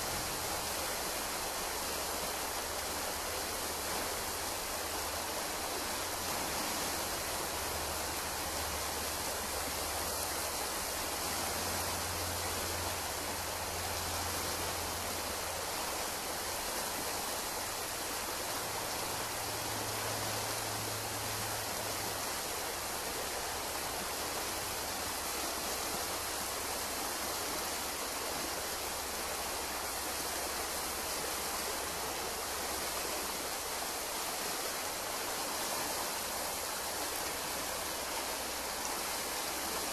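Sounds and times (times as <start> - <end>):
stream running over rocks: 0.0 - 39.9.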